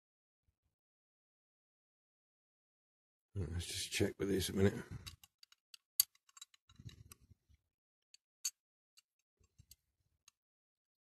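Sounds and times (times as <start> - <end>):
small clicks and taps of handling: 5.0 - 7.3, 8.2 - 10.4.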